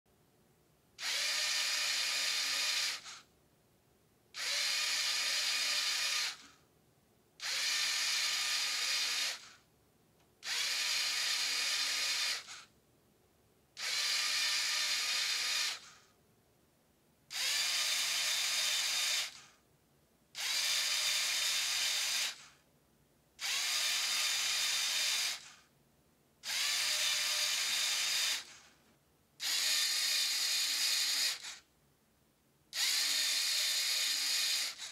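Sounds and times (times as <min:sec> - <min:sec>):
toy motor and gears whirring: 0:01.0 - 0:03.3, 0:04.4 - 0:06.6, 0:07.4 - 0:09.6, 0:10.4 - 0:12.7, 0:13.8 - 0:16.1, 0:17.3 - 0:19.6, 0:20.4 - 0:22.6, 0:23.4 - 0:25.7, 0:26.4 - 0:28.8, 0:29.4 - 0:31.7, 0:32.7 - 0:34.9.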